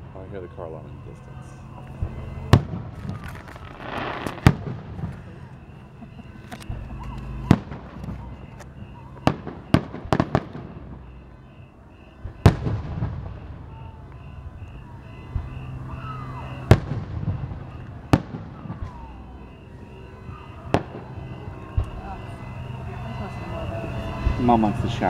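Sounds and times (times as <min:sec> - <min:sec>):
faint car alarm pulsing: 0:00.0 - 0:25.0
fireworks bangs with rumble: 0:02.0 - 0:05.4, 0:06.7 - 0:08.6, 0:09.2 - 0:11.1, 0:12.2 - 0:13.7, 0:16.7 - 0:19.2.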